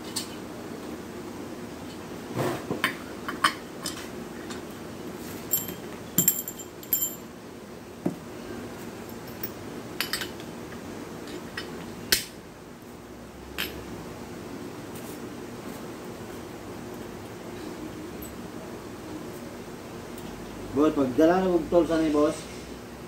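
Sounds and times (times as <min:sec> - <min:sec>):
faint steady hum: 0:00.0 - 0:23.0
metal parts clinking on workbench: 0:05.5 - 0:07.2.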